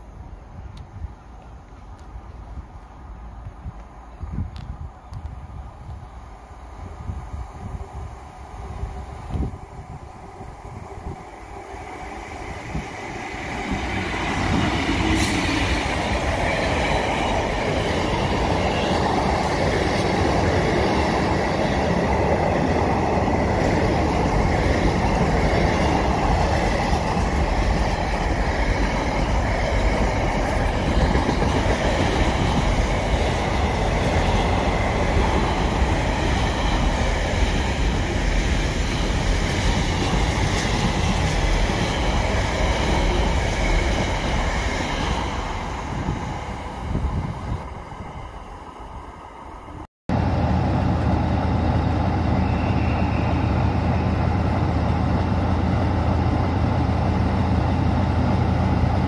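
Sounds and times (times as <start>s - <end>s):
diesel locomotive engine passing: 5.6s - 59.0s
train wheels clattering on rails: 12.4s - 46.2s.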